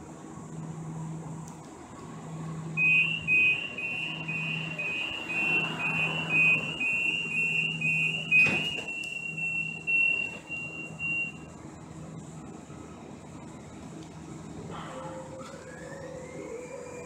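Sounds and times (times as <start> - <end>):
rail car low hum: 0.0 - 17.0
door warning beeps: 2.8 - 11.5
door shutting knock: 8.4 - 8.9.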